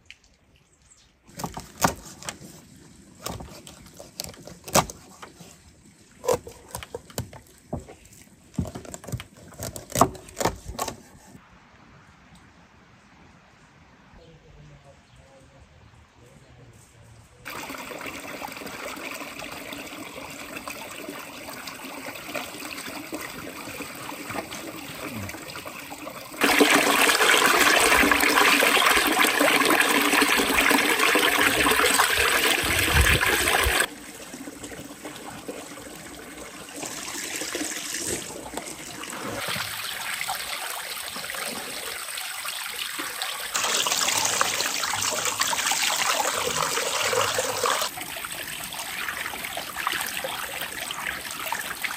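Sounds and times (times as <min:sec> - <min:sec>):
water pouring into a steel basin: 0:17.5 - 0:51.9.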